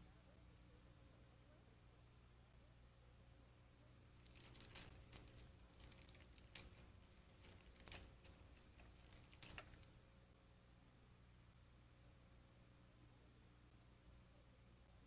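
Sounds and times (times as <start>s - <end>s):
plastic sheet crinkling: 4.0s - 10.0s.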